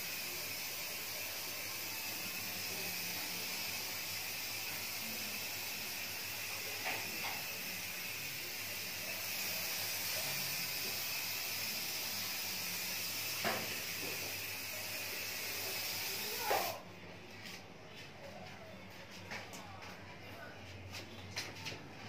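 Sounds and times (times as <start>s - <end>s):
aerosol spray can hissing: 0.0s - 16.8s.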